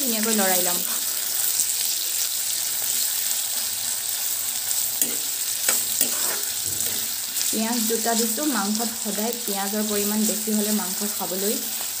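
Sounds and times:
onions sizzling in oil: 0.0s - 12.0s
spatula scraping pan: 5.0s - 7.5s.

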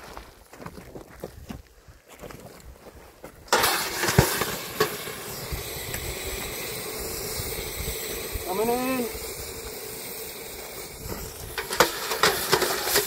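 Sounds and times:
hiss of steam: 3.5s - 13.0s.

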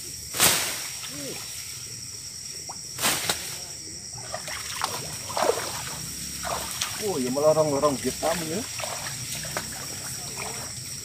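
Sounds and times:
night insects chirring: 0.0s - 11.0s
feet wading through shallow water: 4.2s - 10.8s.

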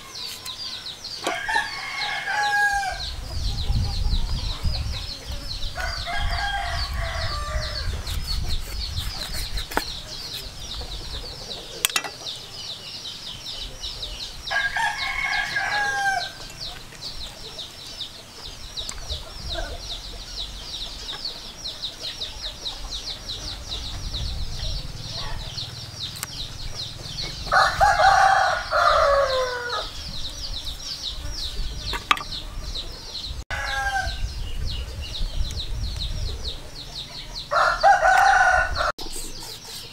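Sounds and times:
rooster crowing: 0.8s - 3.1s, 5.8s - 8.0s, 14.5s - 16.5s, 27.4s - 30.0s, 33.5s - 34.3s, 37.4s - 38.9s.

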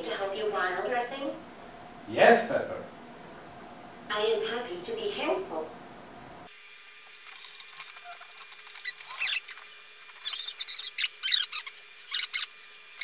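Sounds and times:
robot motors whirring: 7.0s - 13.0s.

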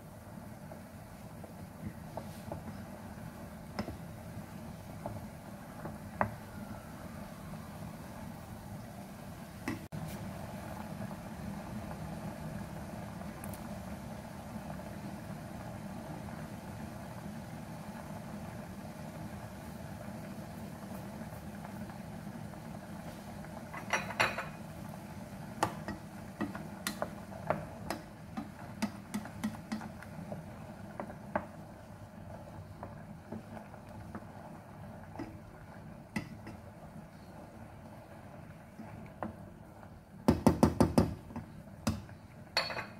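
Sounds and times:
beans bubbling in pot: 0.0s - 42.9s
wooden spoon knocking and scraping pot: 25.6s - 30.1s.

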